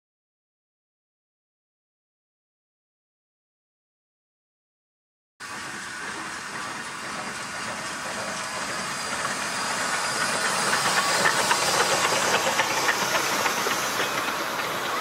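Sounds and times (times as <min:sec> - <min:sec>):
steam locomotive hissing: 0:05.4 - 0:15.0.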